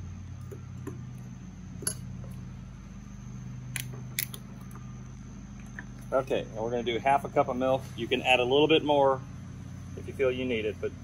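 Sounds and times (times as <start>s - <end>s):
low background hum: 0.0s - 11.0s
sharp clicks: 3.7s - 4.8s.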